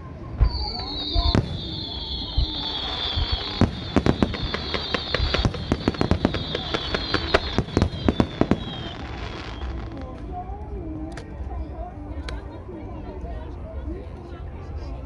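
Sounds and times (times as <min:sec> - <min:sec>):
steady high whine: 0:00.0 - 0:10.2
fireworks bursting with sharp bangs: 0:00.3 - 0:10.3.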